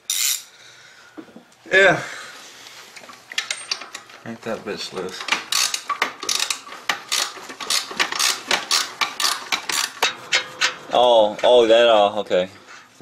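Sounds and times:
socket ratchet clicking: 5.4s - 10.0s.

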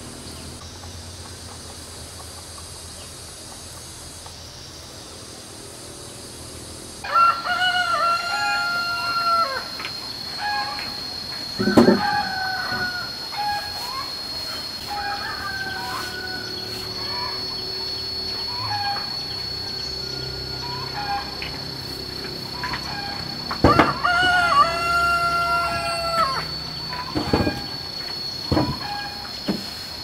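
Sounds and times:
steady high-pitched tone: 0.0s - 30.0s
rooster crowing: 7.0s - 29.4s.

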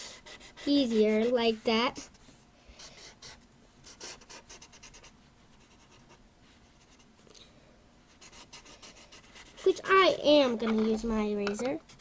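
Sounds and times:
drawing tool rubbing on paper: 0.0s - 2.2s, 2.9s - 6.2s, 8.1s - 10.8s.

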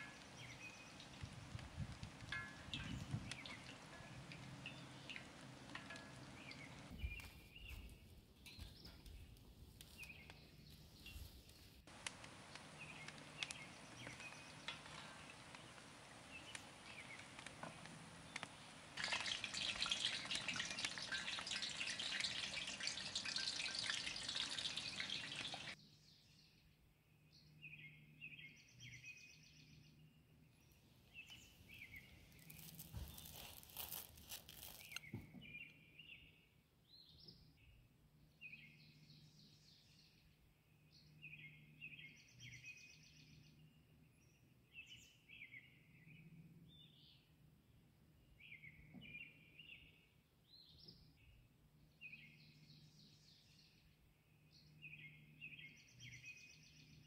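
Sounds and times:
deep-frying sizzle with spatters: 0.0s - 6.9s, 11.9s - 25.8s, 31.8s - 35.1s
birds chirping: 2.2s - 9.2s, 12.0s - 25.8s.

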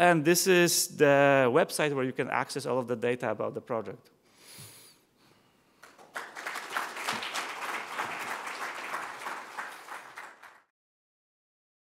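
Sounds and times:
audience applauding: 5.8s - 10.7s.

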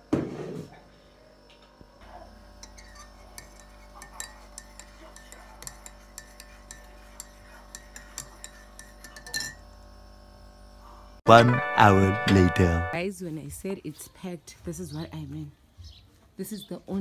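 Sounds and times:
teaspoon clinking in mug: 2.6s - 9.6s.

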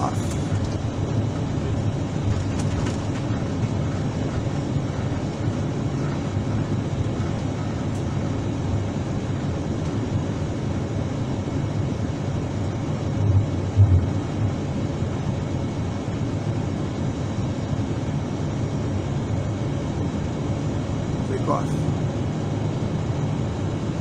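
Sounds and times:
jet engines rumbling inside cabin: 0.0s - 24.0s.

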